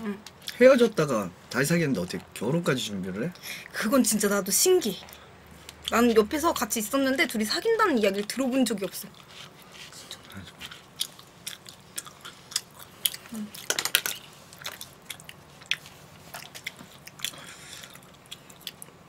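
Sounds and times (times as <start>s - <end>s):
chewing rice cakes: 8.2s - 19.0s.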